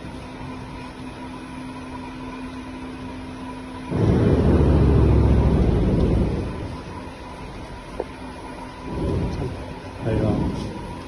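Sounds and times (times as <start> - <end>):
machine humming: 0.0 - 11.0
loud low rumble: 3.8 - 7.4, 8.8 - 11.0.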